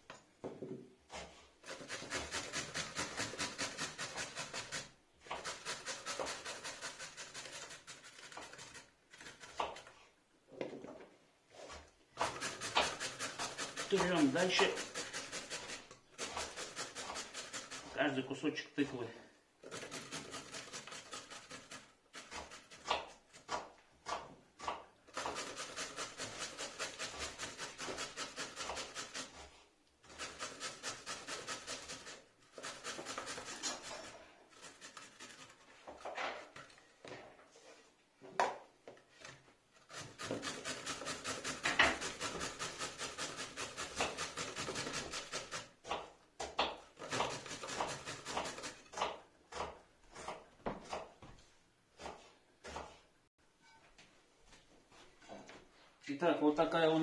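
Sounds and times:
pumpkin rasping on grater: 1.1s - 10.0s, 11.5s - 18.2s, 19.6s - 36.8s, 39.2s - 51.1s.

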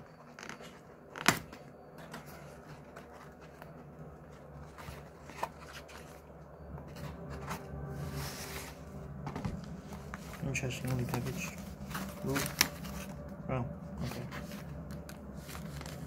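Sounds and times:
cardboard rustling and scraping: 0.0s - 16.0s
cardboard cracking: 10.8s - 13.2s.

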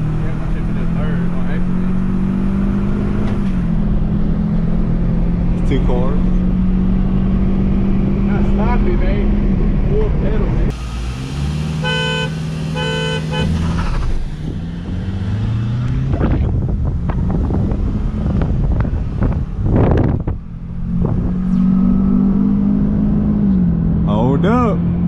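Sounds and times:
car engine at full throttle: 0.0s - 25.0s
car horn toots: 11.8s - 14.0s.

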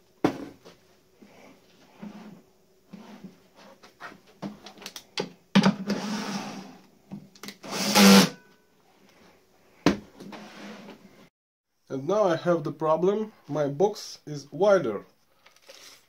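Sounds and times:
cordless drill running: 7.6s - 8.4s.

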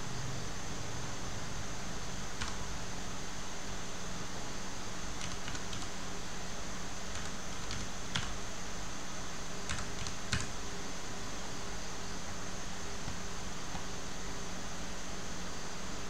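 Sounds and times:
steady background hiss: 0.0s - 16.0s
keyboard keys clicking: 2.4s - 2.6s, 5.2s - 5.9s, 7.1s - 8.4s, 9.7s - 10.5s.

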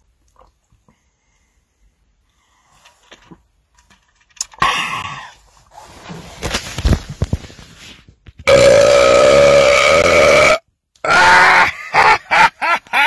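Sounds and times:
man belching: 8.5s - 11.7s.

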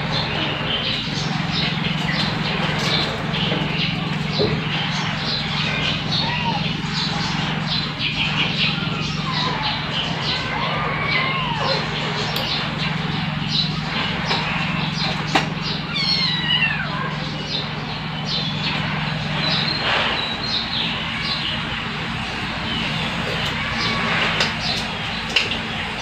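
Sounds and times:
steady low hum: 0.0s - 26.0s
kittens mewing: 4.6s - 26.0s.

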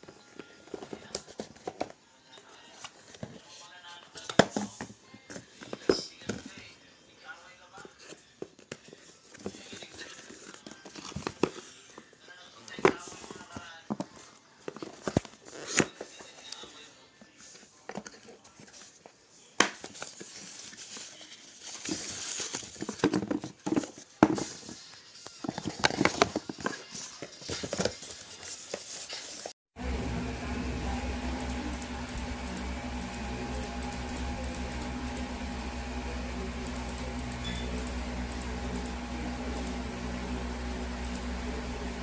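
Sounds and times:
steady machine hum: 29.8s - 42.0s.

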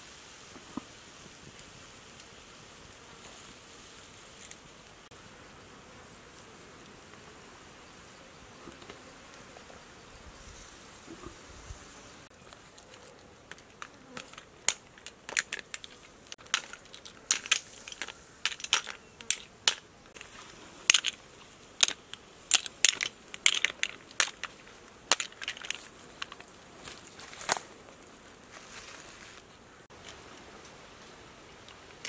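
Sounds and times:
shells clicking and clacking: 13.4s - 19.9s, 20.9s - 26.5s.

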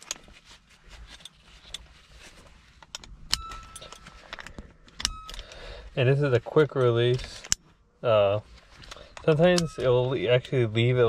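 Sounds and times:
metal harness buckle clicking: 2.8s - 5.6s.

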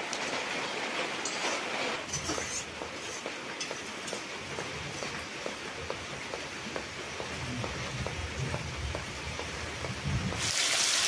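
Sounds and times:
curry sizzling in wok: 10.3s - 11.0s.

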